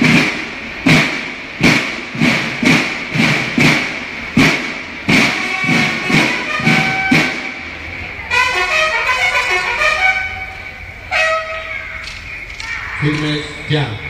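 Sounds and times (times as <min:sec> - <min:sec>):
drums beating: 0:00.0 - 0:13.6
bugles holding notes: 0:00.0 - 0:14.0.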